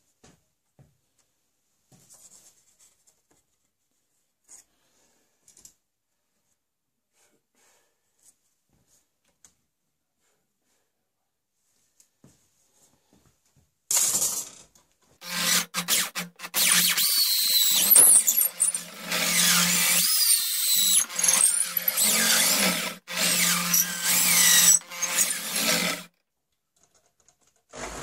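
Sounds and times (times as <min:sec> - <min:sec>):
electric drill boring into wood: 0:15.2 - 0:26.1.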